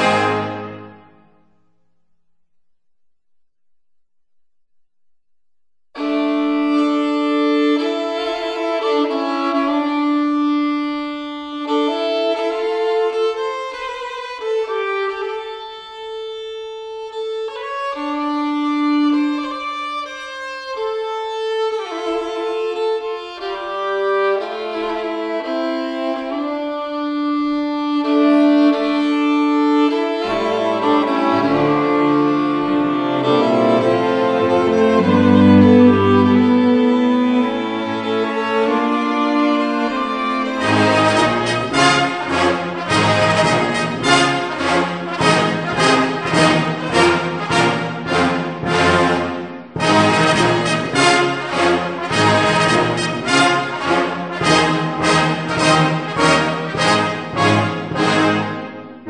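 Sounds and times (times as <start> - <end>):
slow violin melody: 6.0 - 42.5
lower strings: 29.9 - 40.0.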